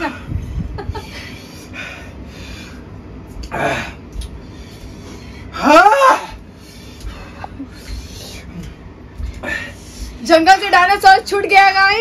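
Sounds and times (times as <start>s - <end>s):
person crying out: 5.6s - 6.4s.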